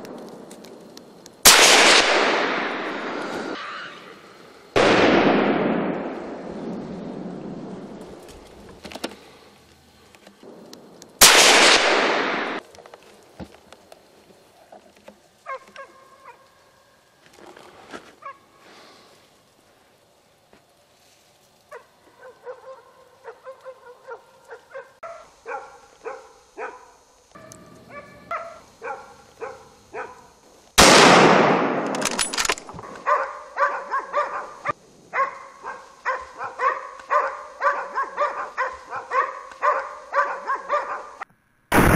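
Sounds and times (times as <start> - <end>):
rifle shots echoing: 1.4 - 3.6, 4.8 - 7.3, 11.2 - 12.6, 30.8 - 32.7
dogs barking: 15.4 - 16.5, 21.7 - 30.3, 32.8 - 41.2.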